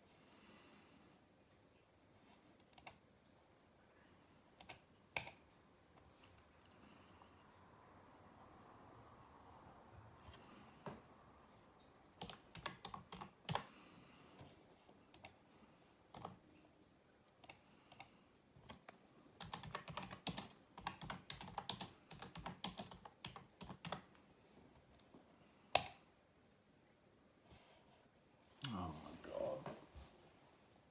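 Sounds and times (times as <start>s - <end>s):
keyboard typing: 2.6s - 3.0s, 4.6s - 5.5s, 12.2s - 13.7s, 14.4s - 15.4s, 16.1s - 16.6s, 17.3s - 24.1s, 25.7s - 26.0s.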